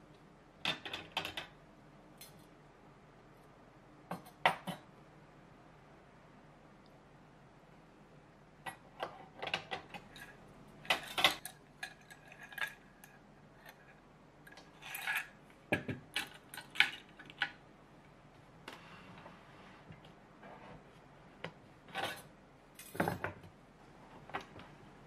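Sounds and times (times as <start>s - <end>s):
metal utensils clinking on wood: 9.9s - 13.9s.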